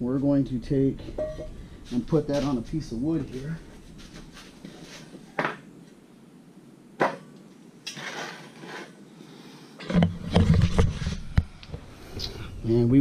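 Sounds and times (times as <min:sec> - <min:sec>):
rustling: 0:01.1 - 0:05.3.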